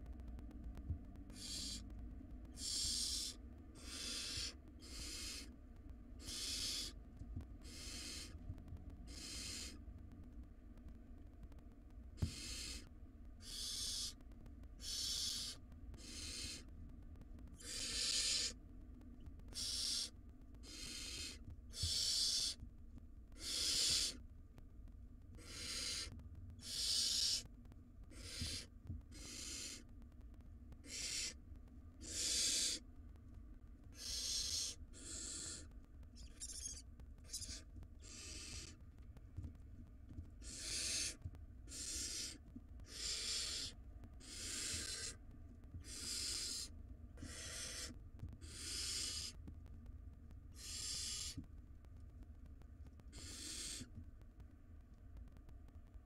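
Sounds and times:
owl nestlings hissing: 0:01.3 - 0:01.8, 0:02.6 - 0:05.5, 0:06.2 - 0:07.0, 0:07.6 - 0:08.4, 0:09.1 - 0:09.8, 0:12.2 - 0:14.2, 0:14.8 - 0:16.7, 0:17.6 - 0:18.6, 0:19.5 - 0:22.6, 0:23.4 - 0:24.2, 0:25.4 - 0:27.5, 0:28.1 - 0:29.9, 0:30.8 - 0:31.4, 0:32.0 - 0:32.8, 0:33.9 - 0:38.8, 0:40.4 - 0:45.2, 0:45.8 - 0:49.4, 0:50.6 - 0:51.4, 0:53.1 - 0:53.9.

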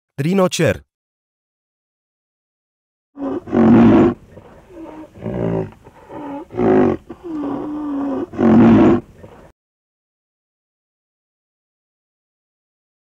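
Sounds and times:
rhinoceros calling: 0:03.2 - 0:09.5.

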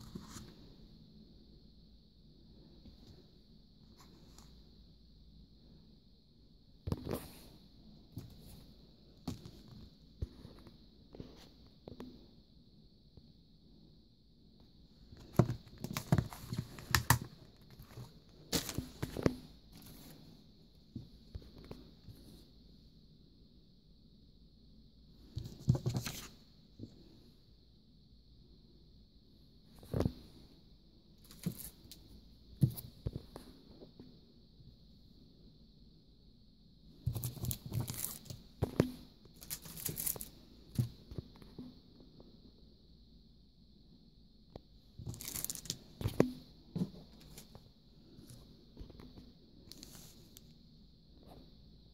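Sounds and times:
paper rustling and crinkling: 0:15.2 - 0:20.0, 0:37.1 - 0:38.4, 0:39.4 - 0:40.3, 0:45.1 - 0:45.8
plastic packets crinkling: 0:45.1 - 0:45.8.

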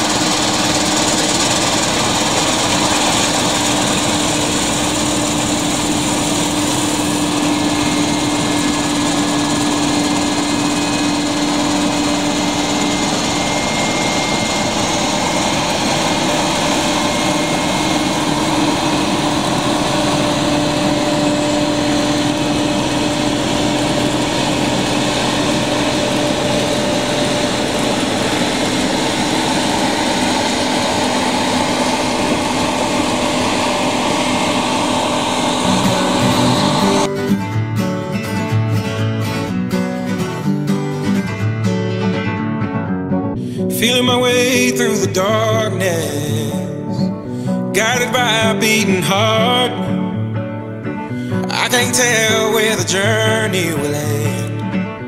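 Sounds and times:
combine harvester droning: 0:00.0 - 0:37.6, 0:43.3 - 0:55.0.

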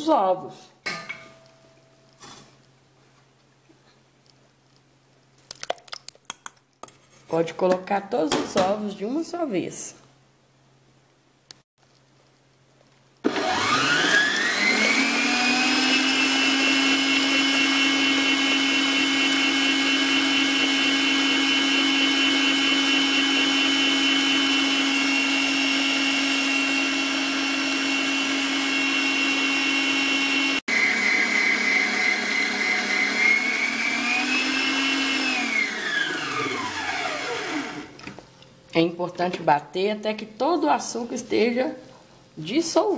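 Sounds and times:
stand mixer motor whine: 0:13.3 - 0:38.0.

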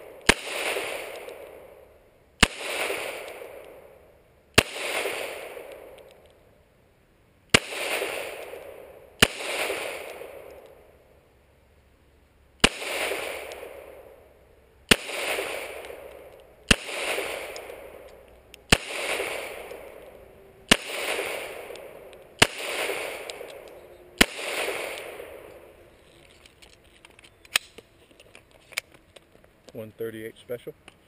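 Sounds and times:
pistol shots: 0:00.0 - 0:06.2, 0:07.5 - 0:10.9, 0:12.6 - 0:14.3, 0:14.9 - 0:25.8.

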